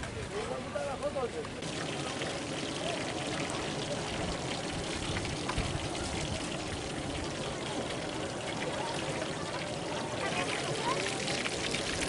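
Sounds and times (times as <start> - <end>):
fish frying in hot oil: 1.6 - 12.0.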